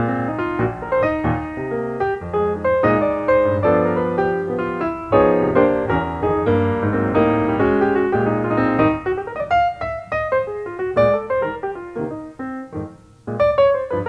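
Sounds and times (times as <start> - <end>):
piano music: 0.0 - 14.0.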